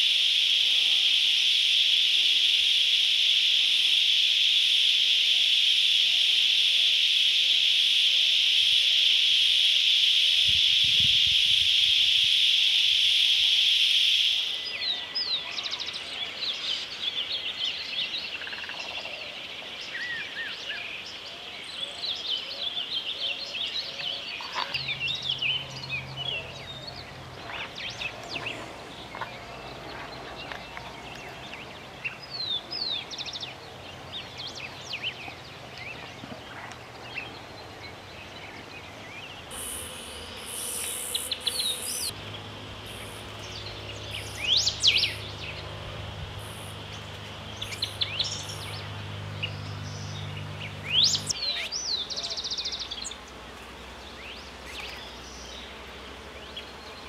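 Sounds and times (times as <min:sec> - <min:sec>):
high-pitched insect drone: 0:00.0 - 0:15.6, 0:39.4 - 0:53.2
small birds chirping: 0:14.6 - 0:53.4.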